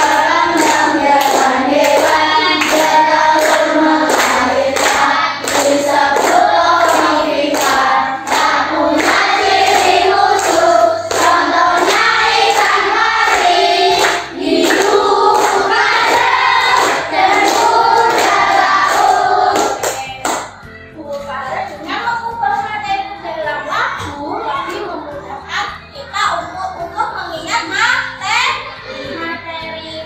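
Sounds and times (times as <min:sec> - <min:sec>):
children singing together: 0:00.0 - 0:20.0, 0:28.6 - 0:29.5
hands clapping in time: 0:00.0 - 0:20.6.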